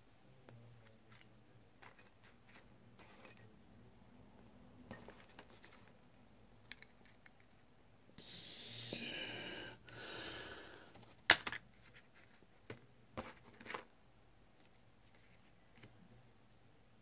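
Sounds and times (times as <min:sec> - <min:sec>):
breathy exhales: 0:08.2 - 0:11.0.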